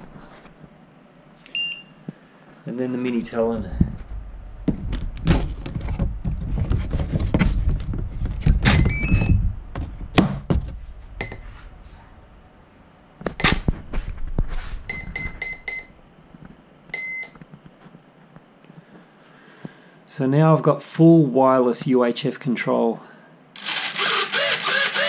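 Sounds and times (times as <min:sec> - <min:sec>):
handling knocks and thuds: 0:03.4 - 0:11.6.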